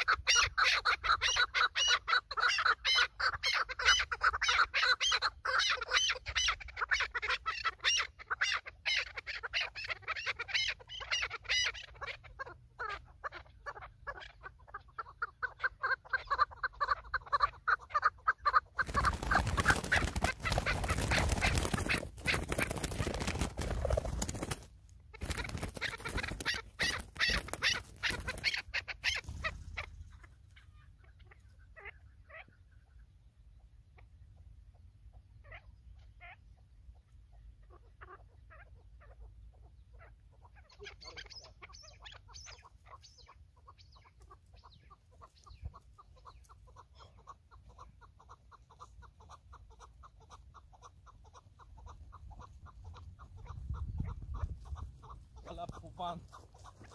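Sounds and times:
wings beating in a scuffle: 18.8 - 29.8.

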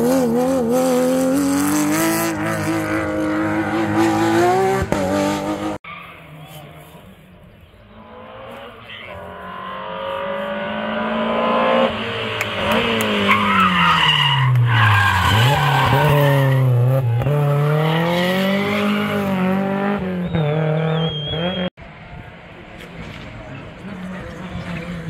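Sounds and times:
rally car engine revving: 0.0 - 5.8, 7.9 - 21.7.

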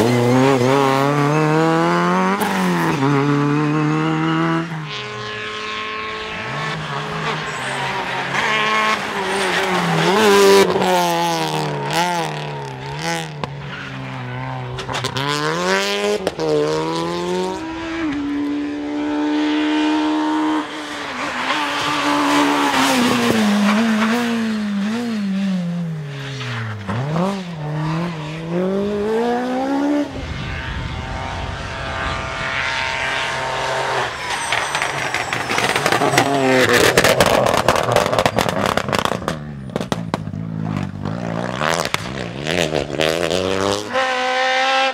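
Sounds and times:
rally car engines revving: 0.0 - 44.9
low rumble: 30.0 - 35.6.

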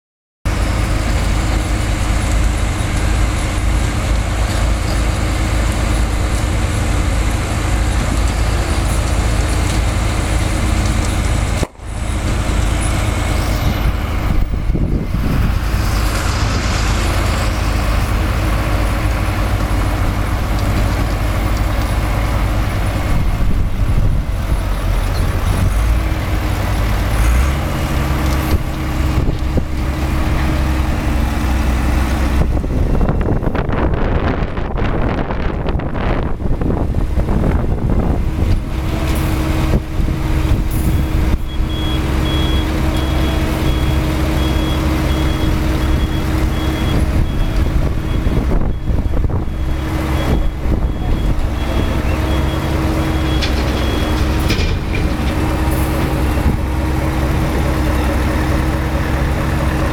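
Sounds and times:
drilling rig diesel engine: 0.5 - 59.9
heavy construction machinery running: 0.5 - 59.9.

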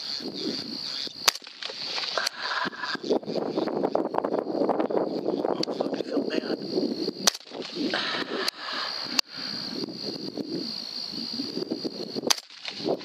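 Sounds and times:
rifle shots cracking: 1.2 - 2.0, 7.2 - 7.6, 12.3 - 12.9.

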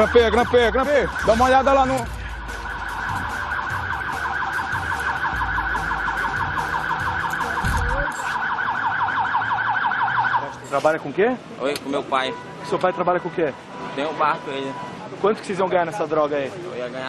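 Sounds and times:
police siren yelping: 0.0 - 10.8.

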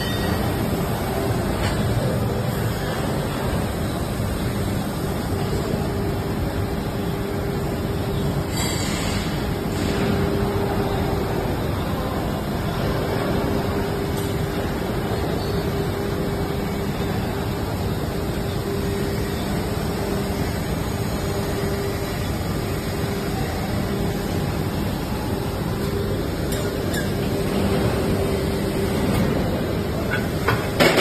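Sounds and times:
machine hum: 0.0 - 31.0.

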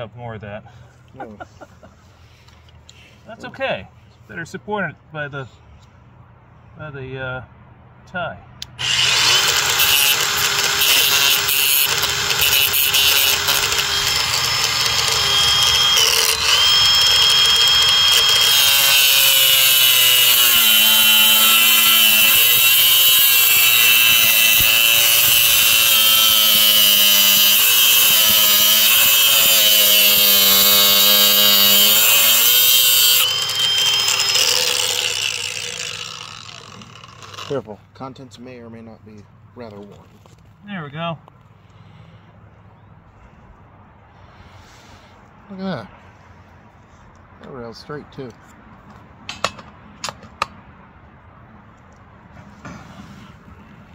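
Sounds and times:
angle grinder motor whine: 8.8 - 37.6
disc grinding metal: 8.8 - 37.6.

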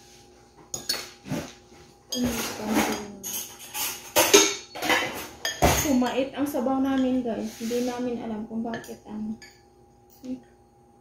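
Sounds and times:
spoon and bowls clinking: 0.7 - 1.2, 2.1 - 6.2, 6.8 - 7.2, 8.7 - 10.3.

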